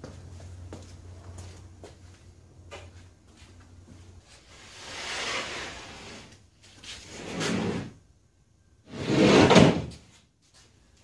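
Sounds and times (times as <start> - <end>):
plywood sheet sliding and scraping: 4.4 - 8.0, 8.9 - 10.1.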